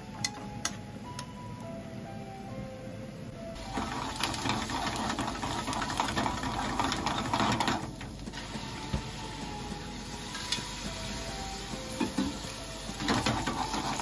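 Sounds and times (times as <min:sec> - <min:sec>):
sauce boiling in frying pan: 0:03.6 - 0:14.0.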